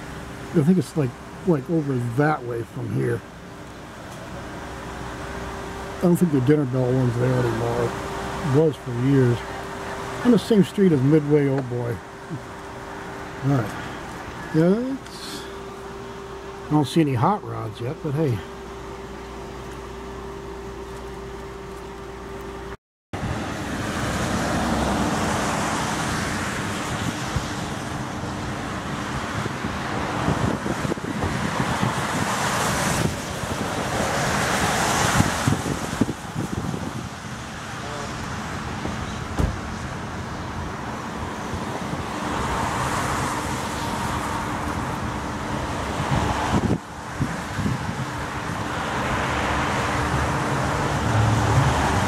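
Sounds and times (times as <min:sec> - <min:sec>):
road traffic passing cars: 0:00.0 - 0:52.0
sharp thump: 0:39.3 - 0:39.7.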